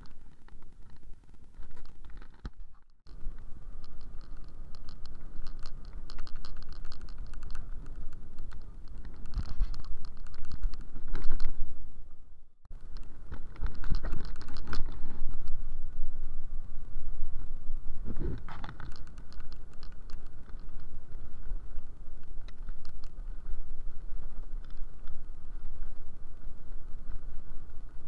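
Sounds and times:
rapid clicking rattle: 0.0 - 11.6, 12.7 - 15.8, 18.4 - 25.5.

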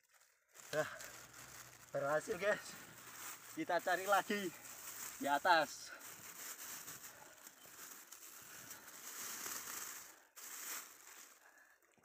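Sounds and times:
leaves rustling and crinkling: 0.0 - 12.0.

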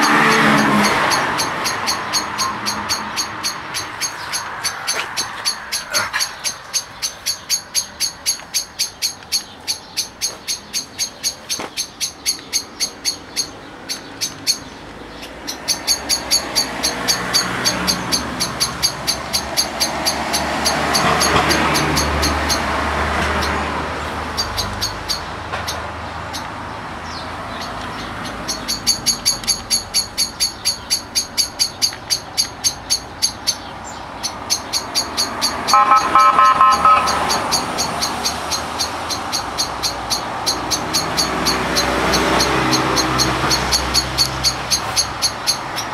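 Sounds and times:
road traffic: 0.0 - 45.9
car horn: 35.5 - 37.9.

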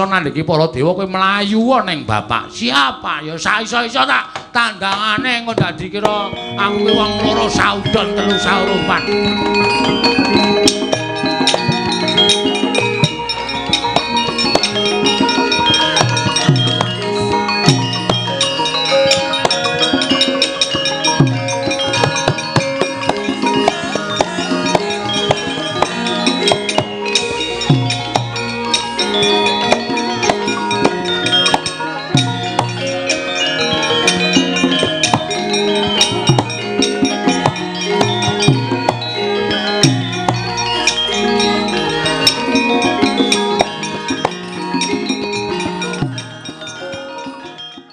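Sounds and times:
metallophones and gongs ringing: 0.0 - 47.9
sharp knocks and drum strokes: 4.2 - 41.1.

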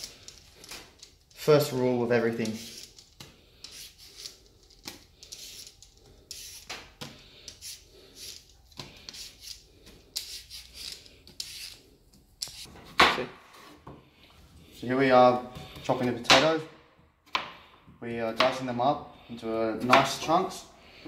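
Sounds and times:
vegetable peeler scraping potato: 2.3 - 4.5, 5.2 - 6.7, 7.4 - 11.9.

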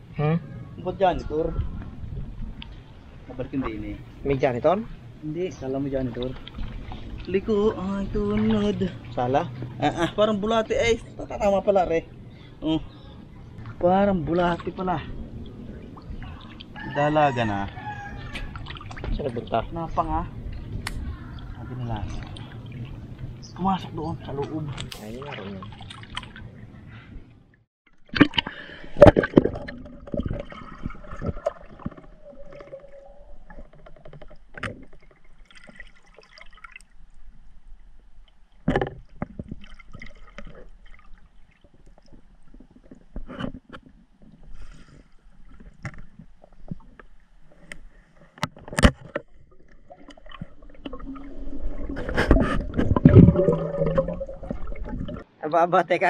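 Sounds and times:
underwater gurgling and bubbling: 28.1 - 34.4, 49.4 - 55.3.

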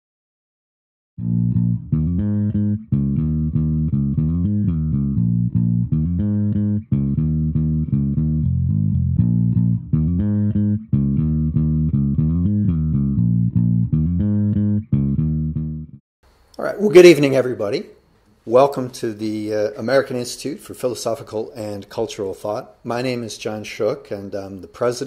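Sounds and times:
plucked bass and guitar music: 1.2 - 16.0.

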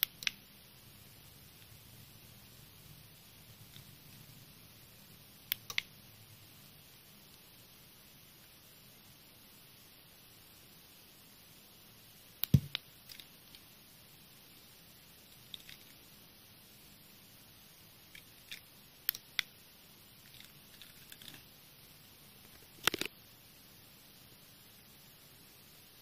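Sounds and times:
faint steady hiss: 0.0 - 26.0
sharp thump: 12.5 - 12.8.

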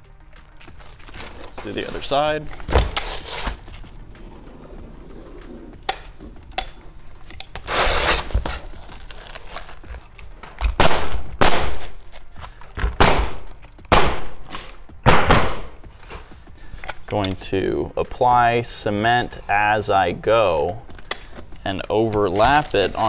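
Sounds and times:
nail gun firing: 10.8 - 11.9, 12.9 - 15.7.

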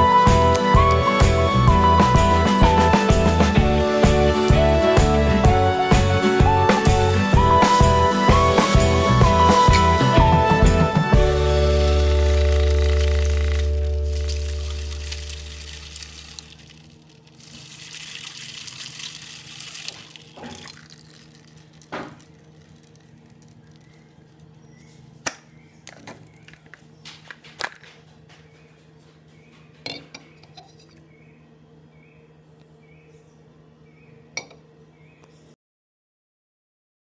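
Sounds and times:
electric motor spinning down: 7.8 - 17.8
ice cubes clinking against can: 11.8 - 24.0.

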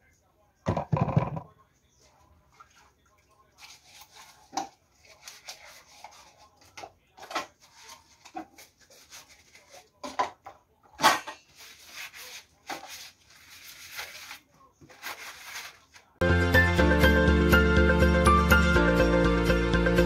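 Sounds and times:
sponge scrubbing dishes: 2.1 - 10.0, 11.4 - 15.7.

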